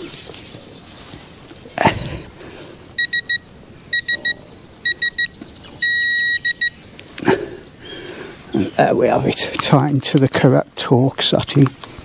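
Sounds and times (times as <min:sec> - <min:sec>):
torque wrench beeping: 0:03.0 - 0:06.8.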